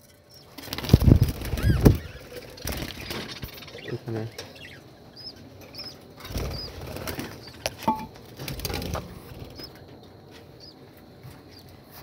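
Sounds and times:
birds rustling and fluttering: 0:00.0 - 0:12.0
lower bird chirp: 0:00.0 - 0:12.0
high bird chirps: 0:01.4 - 0:08.1.

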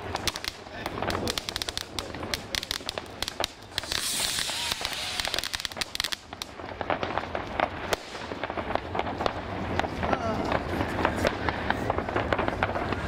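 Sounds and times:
fireworks cracks and pops: 0:00.0 - 0:13.0
hissing rush: 0:03.4 - 0:06.3.

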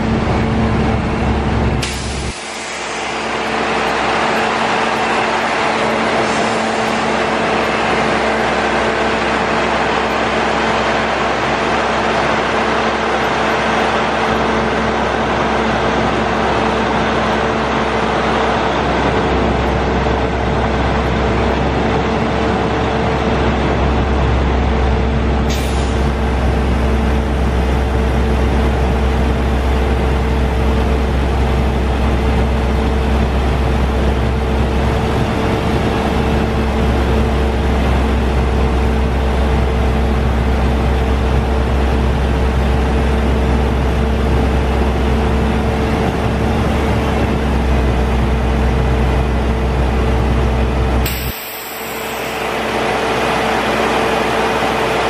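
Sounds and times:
diesel truck engine running: 0:00.0 - 0:55.0.

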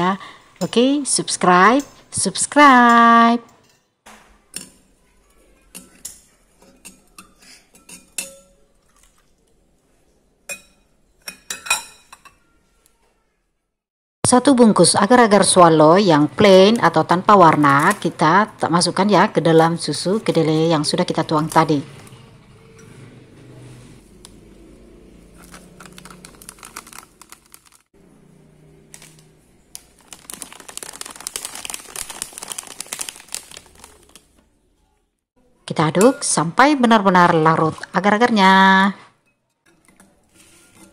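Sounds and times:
metal spoon clinking on glass bowl: 0:05.7 - 0:08.6, 0:10.5 - 0:12.5
powder packet crinkling: 0:25.4 - 0:27.9, 0:28.9 - 0:29.2, 0:29.8 - 0:34.4.

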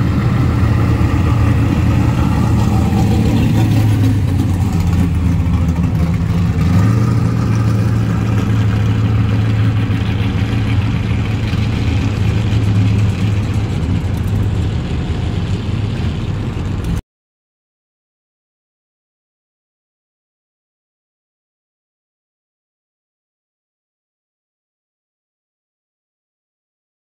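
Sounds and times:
car engine low rumble: 0:00.0 - 0:17.0.

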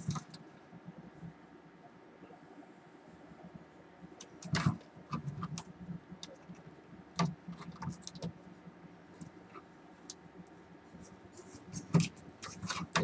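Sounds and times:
hands handling wires and plastic: 0:04.2 - 0:08.4, 0:11.0 - 0:13.0.

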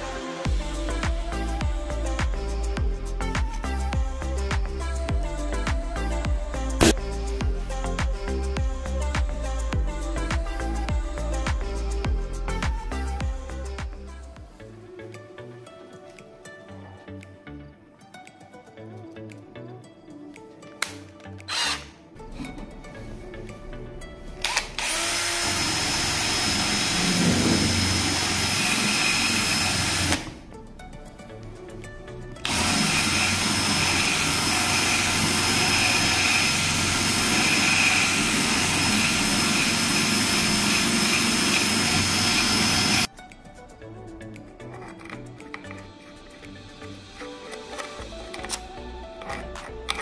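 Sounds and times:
cordless drill motor whine: 0:21.5 - 0:21.9, 0:24.4 - 0:30.4, 0:32.4 - 0:43.1.

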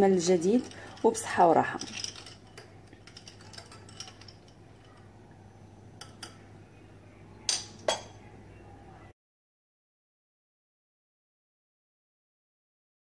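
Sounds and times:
spoon clinking against glass and ice: 0:00.2 - 0:05.0, 0:06.0 - 0:06.4, 0:07.5 - 0:08.2.

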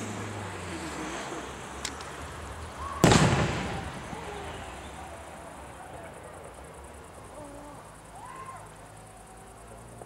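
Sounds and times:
firework burst rumble: 0:02.8 - 0:05.2.

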